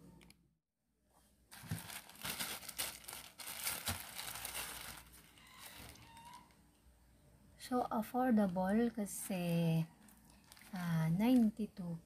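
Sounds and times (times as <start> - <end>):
plastic pouch crinkling: 1.5 - 6.6, 8.3 - 11.6.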